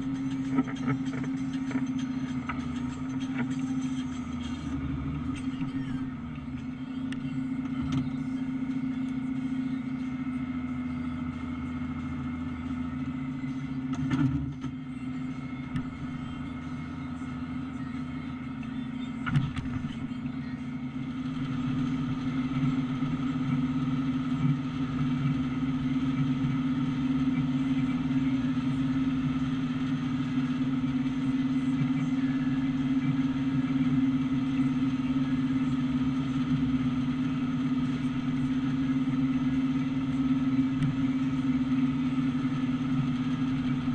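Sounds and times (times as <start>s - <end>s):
tractor diesel engine running: 0.0s - 43.9s.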